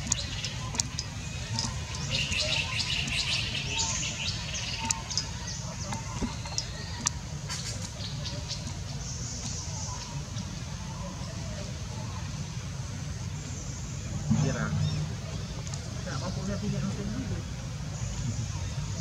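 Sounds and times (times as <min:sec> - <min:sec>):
steady low rumble: 0:11.7 - 0:19.0.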